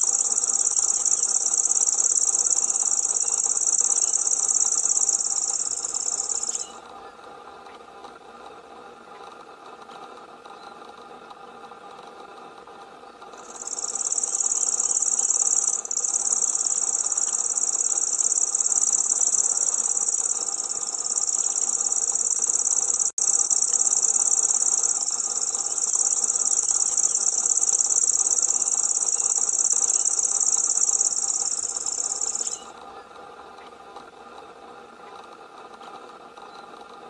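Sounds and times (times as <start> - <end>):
bird reeling song: 0.0 - 6.8, 13.4 - 32.8.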